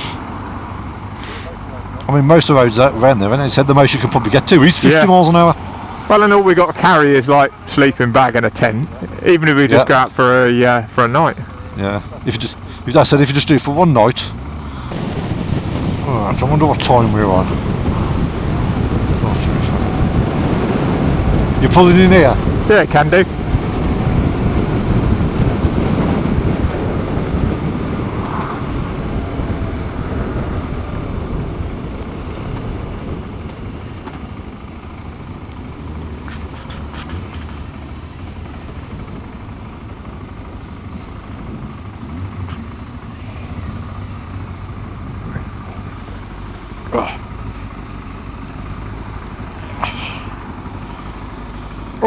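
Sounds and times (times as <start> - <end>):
motorcycle engine running: 4.6 - 52.0
wind rumble: 14.3 - 52.0.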